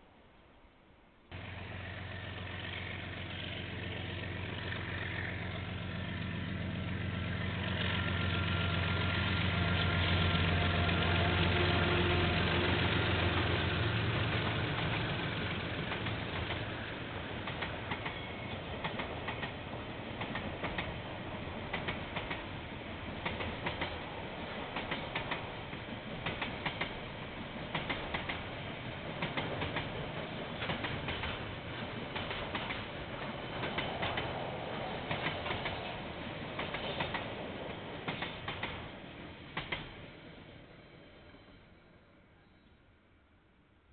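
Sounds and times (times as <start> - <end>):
diesel locomotive engine: 1.3 - 42.9
train wheels clicking over rail joints: 12.8 - 40.1.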